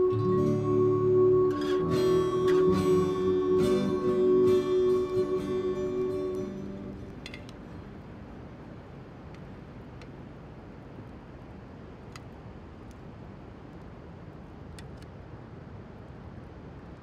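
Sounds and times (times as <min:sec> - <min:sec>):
wind: 0:00.0 - 0:17.0
faint sharp clicks: 0:14.7 - 0:15.2.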